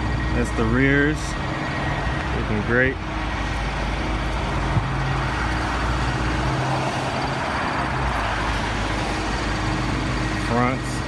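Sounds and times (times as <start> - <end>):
vehicle engine hum: 0.0 - 11.0.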